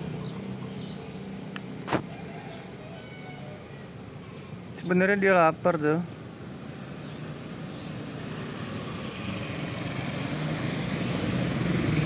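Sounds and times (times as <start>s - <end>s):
vehicle approaching: 0.0s - 2.8s, 5.5s - 12.0s.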